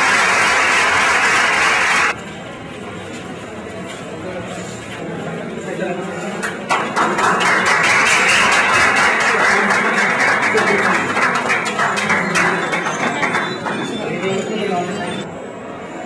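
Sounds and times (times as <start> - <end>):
audience applauding: 0.0 - 2.2, 6.7 - 14.4.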